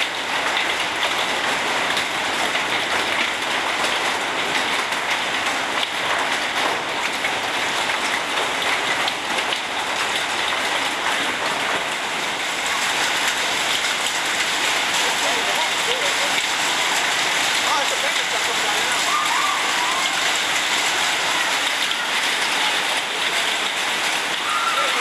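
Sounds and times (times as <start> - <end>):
hail and rain pattering: 0.0 - 25.0.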